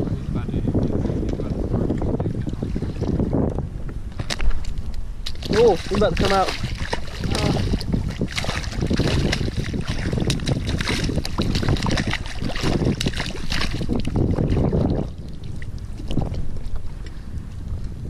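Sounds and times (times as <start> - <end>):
wind buffeting microphone: 0.0 - 18.0
fish thrashing and splashing: 4.1 - 17.1.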